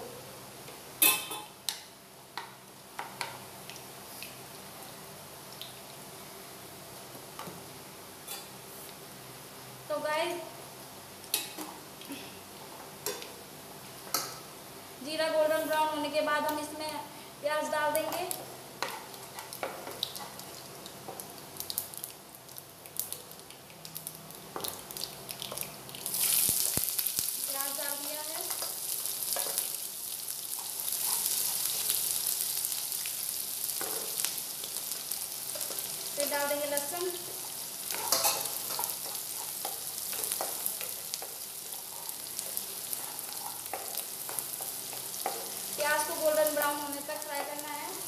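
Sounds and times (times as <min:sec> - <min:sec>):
onion sizzling in oil: 0:00.2 - 0:48.0
seeds crackling in hot oil: 0:00.7 - 0:06.1, 0:16.4 - 0:48.0.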